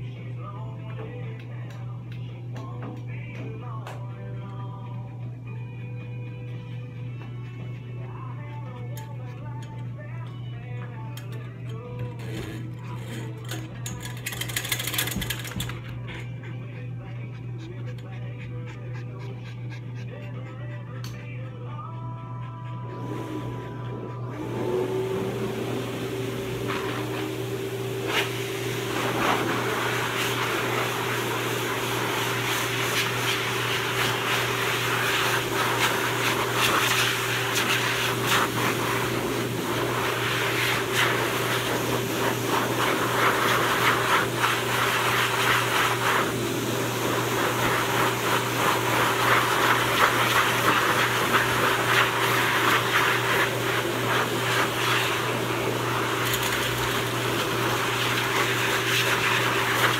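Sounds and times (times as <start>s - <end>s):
pet dryer blowing air: 22.8s - 59.9s.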